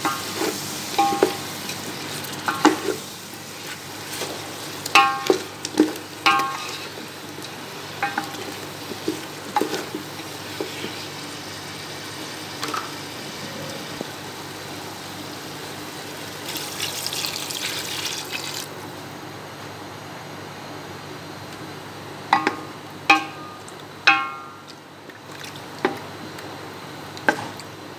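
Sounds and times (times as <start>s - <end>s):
food sizzling in a pot: 0.0s - 18.8s
spatula knocking against pot: 1.0s - 1.4s, 5.0s - 5.4s, 6.3s - 6.7s, 8.0s - 8.4s, 22.3s - 24.7s
water hissing in hot pot: 10.4s - 18.7s.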